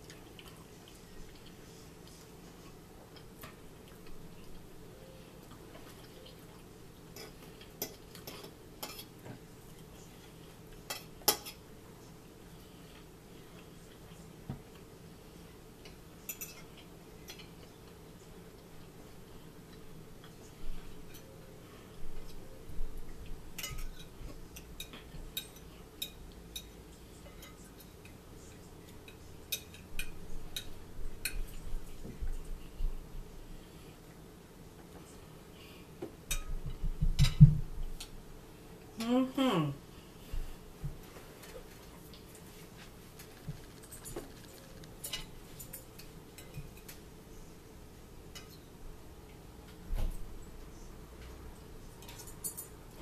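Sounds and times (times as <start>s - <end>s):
forks clinking on plates: 16.2s - 17.6s, 52.0s - 52.8s.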